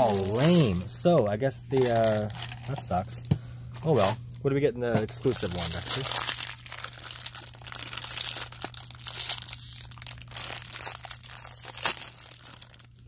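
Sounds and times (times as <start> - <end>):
foil bag crinkling: 0.0 - 0.8, 1.7 - 3.0, 5.0 - 13.0.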